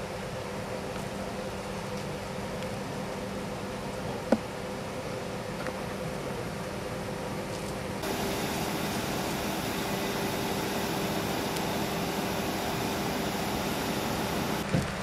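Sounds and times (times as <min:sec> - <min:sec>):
steady hiss: 0:08.0 - 0:14.7.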